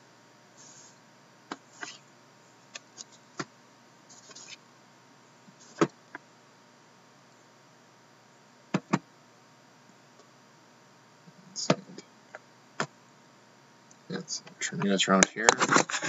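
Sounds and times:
boxes tapped and knocked on table: 0:08.7 - 0:09.0.

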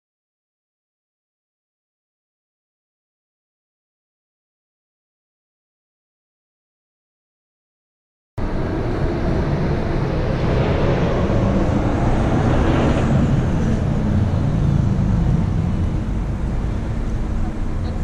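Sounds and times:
street traffic rumble: 0:08.4 - 0:18.0.

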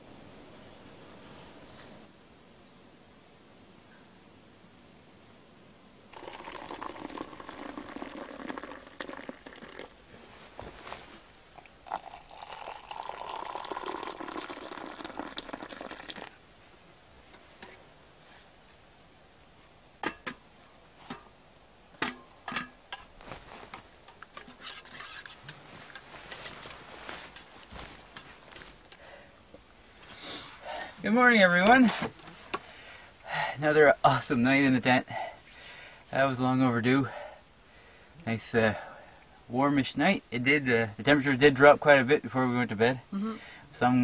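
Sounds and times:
water pouring into vessel: 0:06.1 - 0:10.0, 0:11.8 - 0:16.4.

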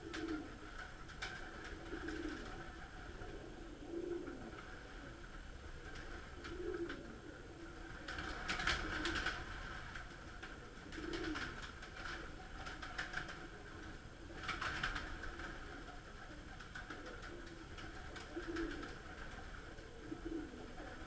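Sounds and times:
pigeons cooing: 0:00.0 - 0:21.0
wings clattering: 0:08.0 - 0:19.9.

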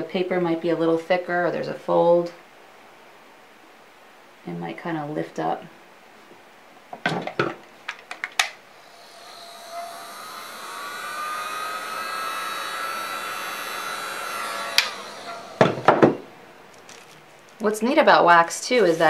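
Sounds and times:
heat gun fan blowing: 0:08.4 - 0:19.0
knocks: 0:15.6 - 0:16.2.

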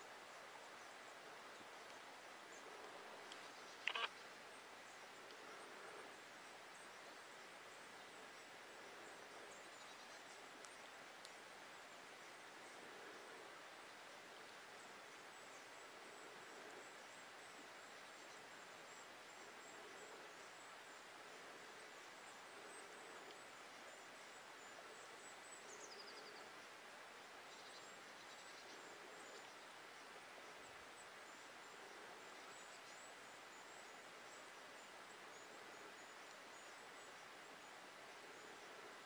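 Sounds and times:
steady hiss: 0:00.0 - 0:39.0
faint high-pitched bird calls: 0:03.3 - 0:04.3.

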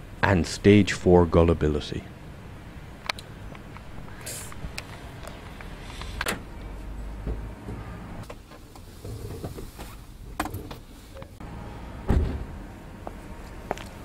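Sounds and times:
low rumble: 0:01.1 - 0:07.5
heavy thump: 0:12.1 - 0:12.5.

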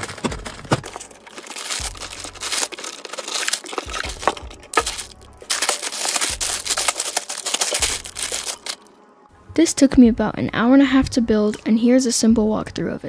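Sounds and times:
cardboard box tearing: 0:00.0 - 0:08.8
plastic bags crinkling: 0:00.0 - 0:08.9.

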